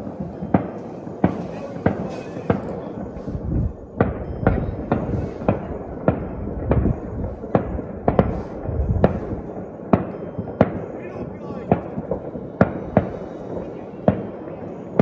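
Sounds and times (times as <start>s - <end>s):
fireworks banging: 0.0s - 15.0s
low rumble: 3.0s - 9.5s.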